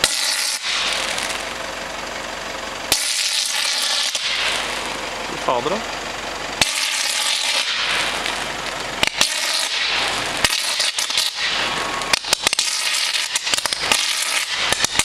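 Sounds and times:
sharp electrical pops: 0.0s - 1.7s, 2.9s - 5.8s, 6.6s - 15.0s
electrical arc hissing crackle: 0.0s - 1.8s, 2.9s - 5.8s, 6.6s - 15.0s.

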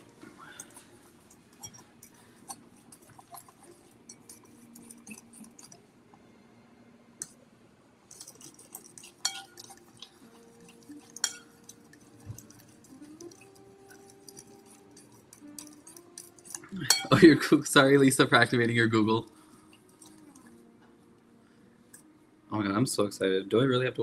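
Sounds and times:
spoon clinking against bowl: 0.6s - 5.8s, 8.1s - 17.4s
spoon scraping a ceramic bowl: 0.6s - 5.8s, 8.1s - 17.3s.

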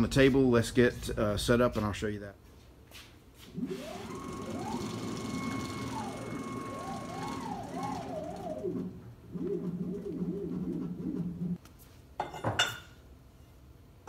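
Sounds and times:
stepper motors whining: 3.6s - 11.6s
warbling rising and falling tones: 3.6s - 11.6s.

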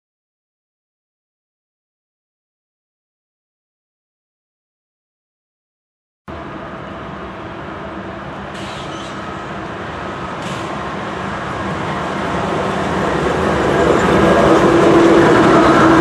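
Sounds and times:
diesel locomotive engines: 6.3s - 16.0s
train rumble: 6.3s - 16.0s.

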